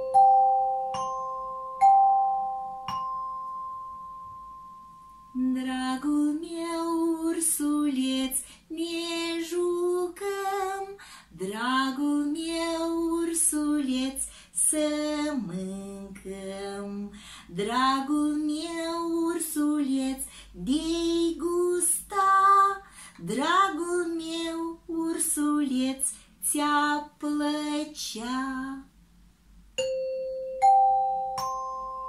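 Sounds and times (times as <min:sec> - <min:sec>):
mallet striking chime bars: 0:00.0 - 0:05.4, 0:29.8 - 0:32.0
woman singing: 0:05.4 - 0:28.9.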